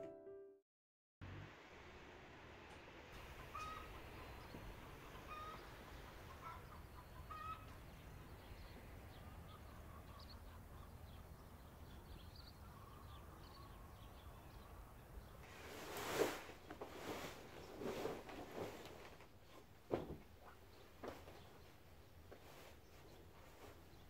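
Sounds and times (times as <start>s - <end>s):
bird calls: 3.3s - 15.4s.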